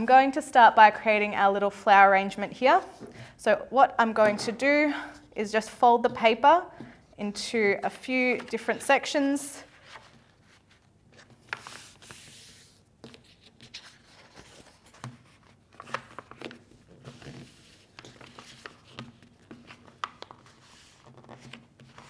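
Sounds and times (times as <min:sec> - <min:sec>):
paper rustling and sliding: 0:09.6 - 0:22.0
paper crackling as folded: 0:09.7 - 0:22.0.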